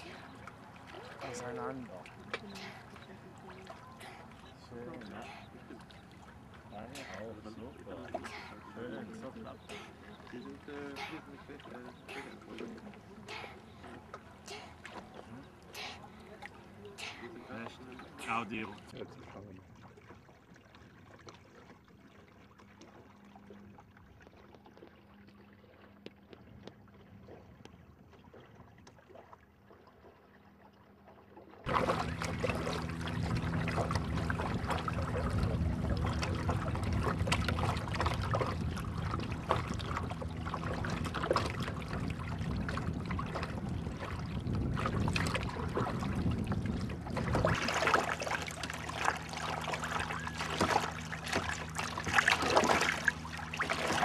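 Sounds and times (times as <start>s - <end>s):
small water splashes: 0.0s - 54.0s
water lapping against hull: 0.0s - 54.0s.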